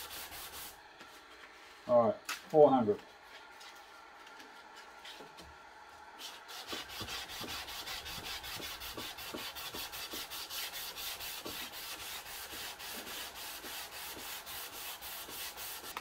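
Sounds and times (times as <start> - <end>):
sandpaper rubbing on wood: 0.0 - 0.8, 6.2 - 16.0.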